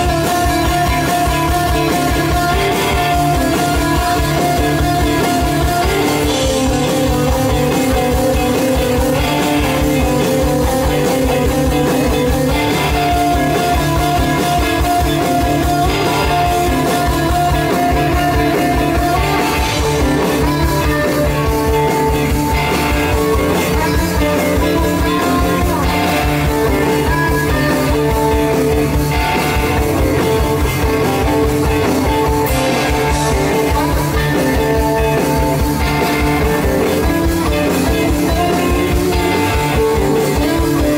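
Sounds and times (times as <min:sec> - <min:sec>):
bass guitar: 0:00.0 - 0:40.9
electric guitars: 0:00.0 - 0:40.9
steady drum beat: 0:00.0 - 0:40.9.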